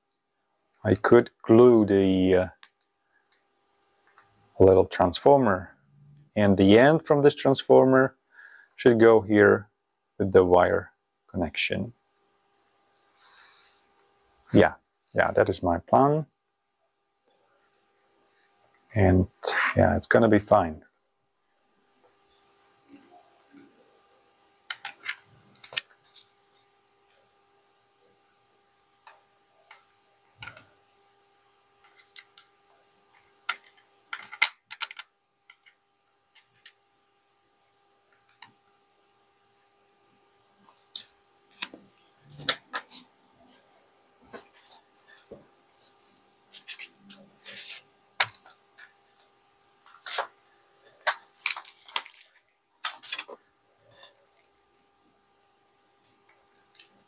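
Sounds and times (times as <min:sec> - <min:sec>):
small parts clicking on plastic: 0:33.5 - 0:36.8.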